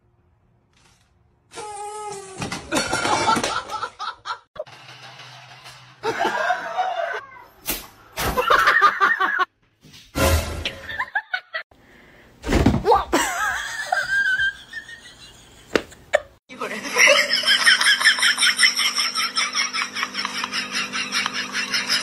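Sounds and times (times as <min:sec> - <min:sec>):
people laughing: 0:02.7 - 0:04.7, 0:06.0 - 0:07.2, 0:08.4 - 0:09.5, 0:13.2 - 0:22.0.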